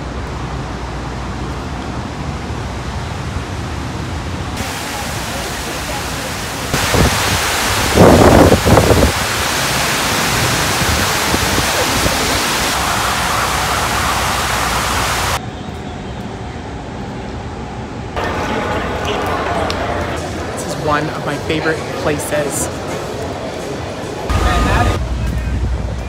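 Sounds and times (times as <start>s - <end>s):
city street ambience: 0.0s - 26.0s
waterfall rushing: 4.6s - 15.4s.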